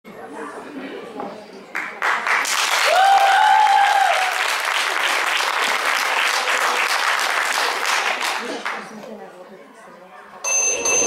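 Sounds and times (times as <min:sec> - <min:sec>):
audience clapping and cheering: 0:01.8 - 0:09.0
long high cheer: 0:02.6 - 0:06.6.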